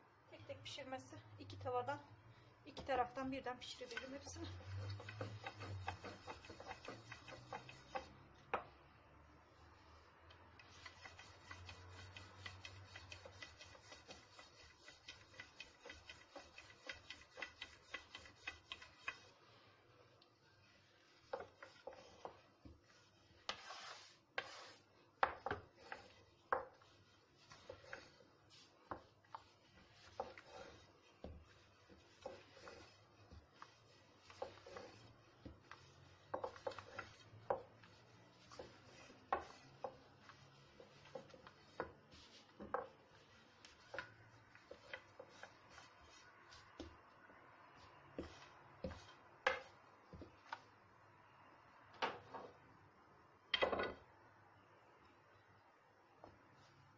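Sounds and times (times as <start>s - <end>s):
rolling pin rubbing dough: 3.7s - 8.2s, 10.6s - 19.6s, 20.4s - 47.0s, 47.8s - 50.7s.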